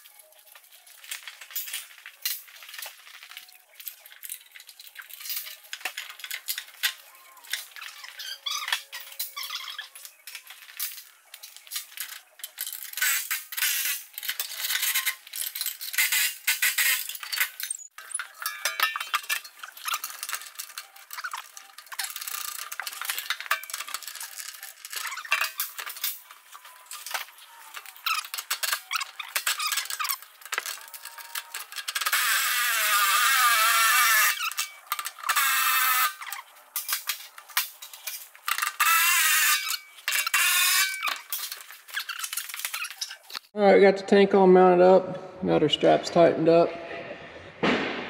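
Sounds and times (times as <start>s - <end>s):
bolts and tools clinking: 0.0s - 43.5s.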